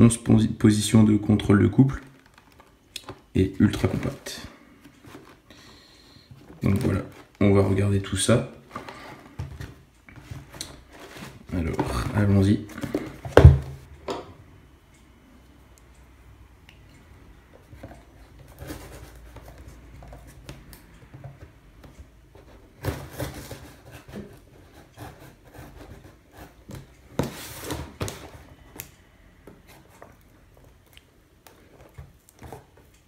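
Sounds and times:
cardboard rustling and knocks: 12.8s - 13.8s, 26.6s - 28.4s.

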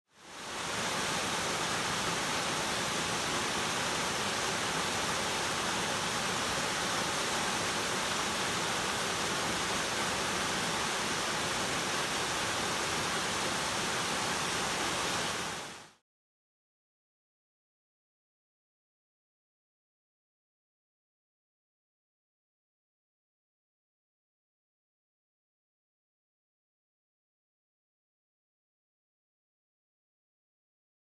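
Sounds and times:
waterfall rushing: 0.2s - 16.0s.

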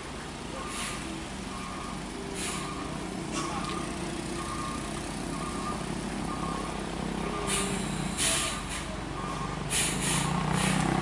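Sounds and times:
truck engine under load: 0.0s - 11.0s
short sharp hisses: 9.7s - 10.8s.

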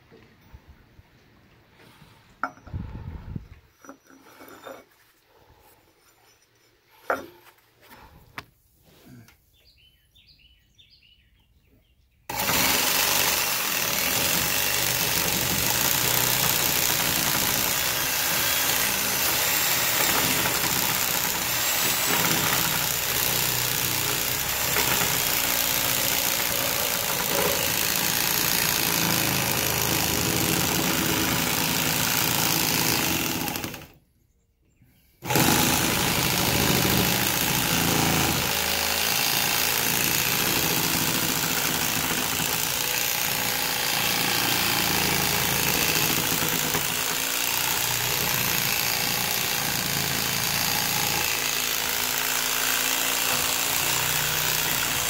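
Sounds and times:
reciprocating saw cutting wood: 12.3s - 34.0s, 35.2s - 55.0s.

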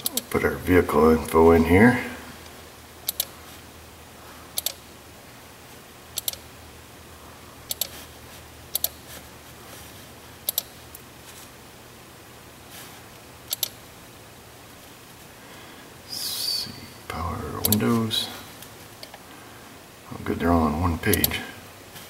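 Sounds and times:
faint low hum: 0.0s - 22.0s
computer mouse clicking: 3.1s - 3.3s, 4.6s - 4.8s, 6.2s - 6.4s, 7.7s - 8.0s, 8.7s - 9.0s, 10.5s - 10.7s, 13.5s - 13.8s.

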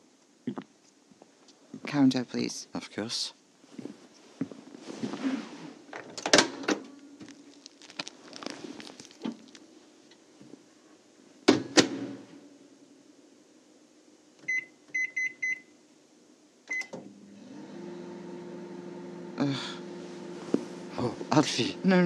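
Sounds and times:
keypad beeps: 14.5s - 15.6s
microwave oven humming: 16.6s - 22.0s.

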